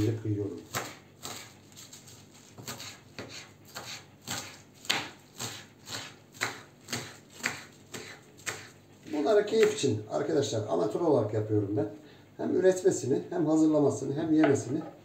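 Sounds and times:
knife chopping on wooden board: 0:00.6 - 0:09.8.

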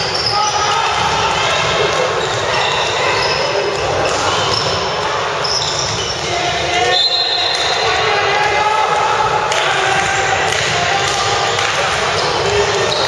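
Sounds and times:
players calling out: 0:00.0 - 0:13.0
shoes squeaking: 0:02.0 - 0:07.8.

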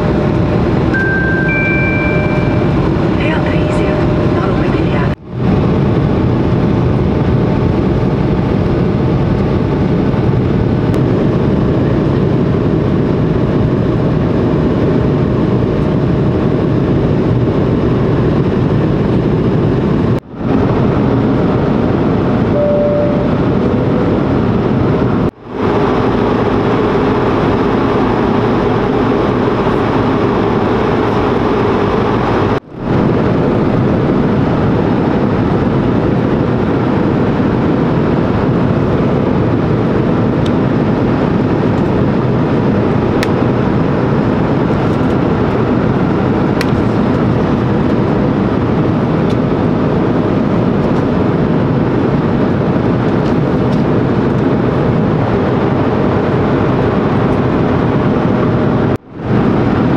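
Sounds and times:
jet engine rumble: 0:00.0 - 0:59.9
two-note tone: 0:00.9 - 0:04.7, 0:22.5 - 0:24.1.

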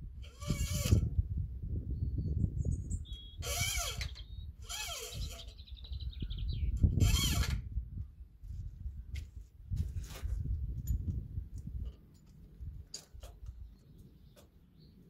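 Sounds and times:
small bird trilling and whistling: 0:01.9 - 0:03.4, 0:04.1 - 0:07.0.

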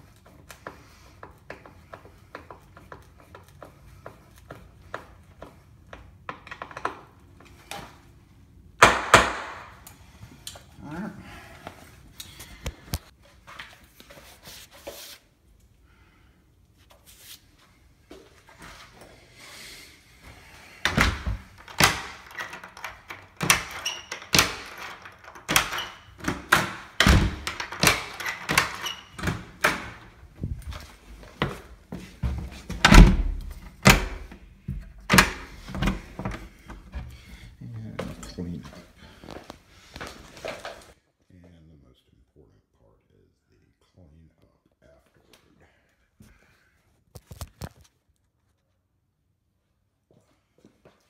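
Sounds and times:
door thunking shut: 0:20.9 - 0:30.0, 0:32.7 - 0:34.3
key turning deadbolt clicks: 0:20.9 - 0:30.0.

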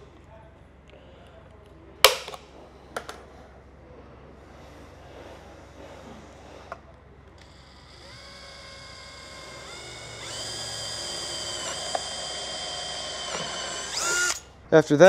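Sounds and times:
drill motor whining: 0:05.9 - 0:15.0.

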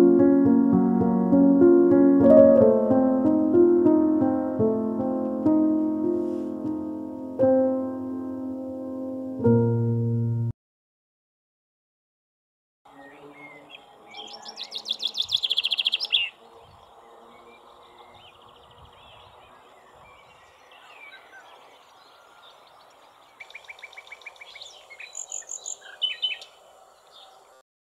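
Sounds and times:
chaffinch singing: 0:12.9 - 0:27.6.

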